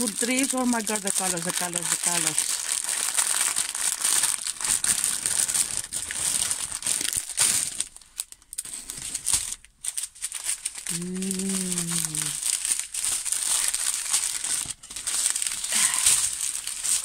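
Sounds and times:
cellophane crinkling: 0.0 - 17.0.

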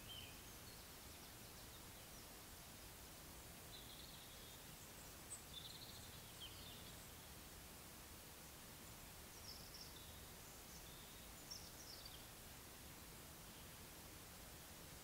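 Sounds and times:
small birds chirping: 0.0 - 3.0, 3.7 - 7.4, 9.2 - 12.4.

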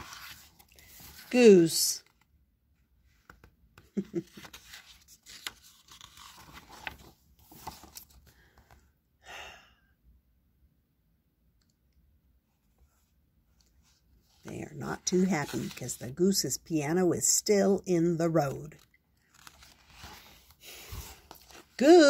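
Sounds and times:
paper pages rustling: 0.0 - 2.3, 3.1 - 8.8, 15.1 - 16.0, 18.6 - 22.0.

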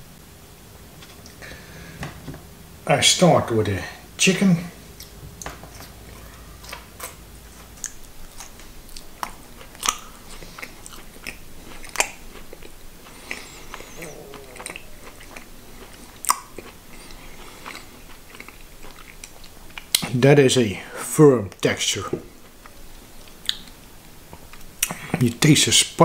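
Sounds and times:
sausage snapping: 6.6 - 13.8, 15.1 - 20.2
wet chewing clicks and smacks: 6.7 - 14.0, 14.6 - 20.2, 22.5 - 25.2.

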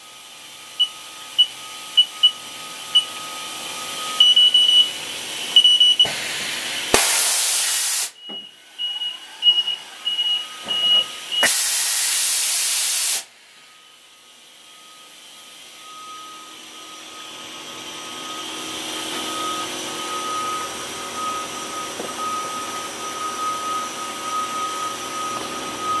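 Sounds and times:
low electronic beep: 0.7 - 6.1, 8.1 - 11.5, 13.5 - 26.0
fast pulsing electronic beep: 0.8 - 3.2, 3.8 - 6.1, 8.2 - 11.4
compressed air hissing: 6.0 - 8.2, 11.1 - 13.7.

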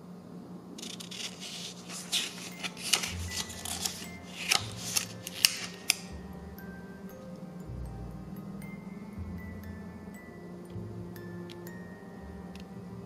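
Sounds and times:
paper pages turning: 0.8 - 6.1.

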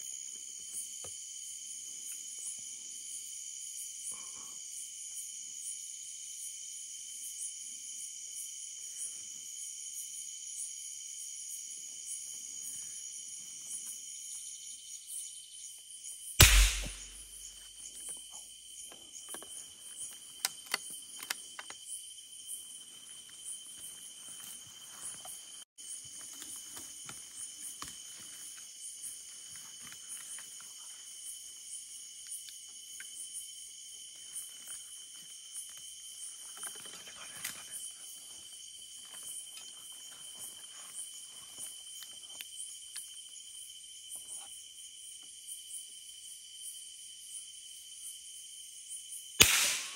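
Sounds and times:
insects chirping: 0.0 - 49.9
loud thump: 16.4 - 17.2
sharp clicks: 16.4 - 17.2, 49.4 - 49.9.

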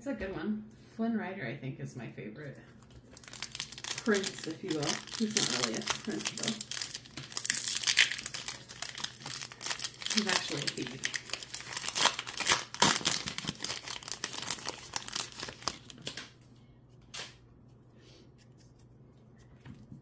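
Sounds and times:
foil pack tearing and crinkling: 2.8 - 16.3.

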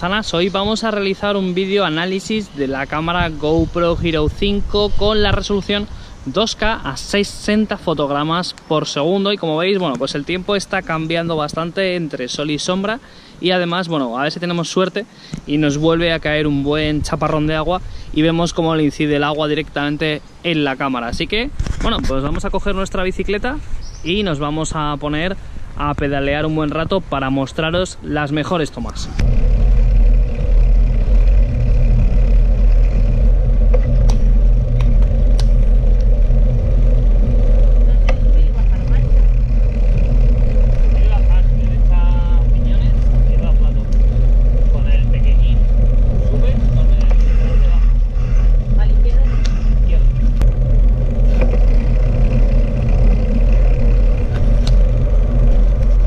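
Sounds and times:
wind and tyres rumbling: 0.0 - 56.0
tyre noise on wet asphalt: 29.1 - 56.0
bicycle clicks and rattles: 29.2 - 56.0
sharp clicks: 33.7 - 36.2.

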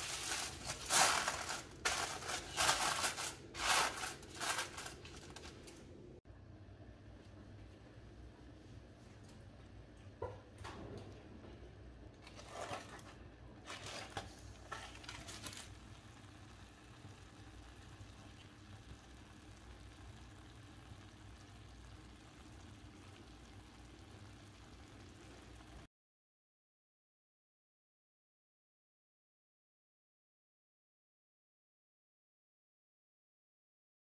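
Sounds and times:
aluminium foil crinkling: 0.0 - 5.9, 12.2 - 18.4.

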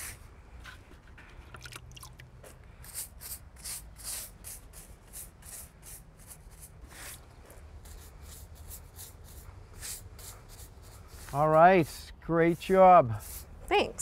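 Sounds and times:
brush scrubbing brick: 2.8 - 14.0.

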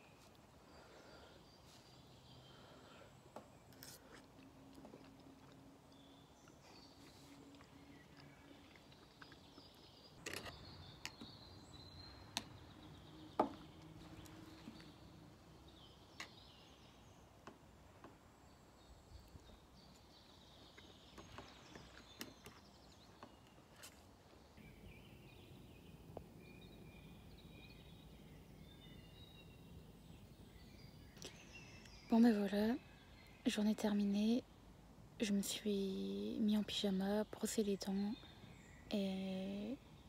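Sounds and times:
faint birdsong: 0.0 - 40.0.

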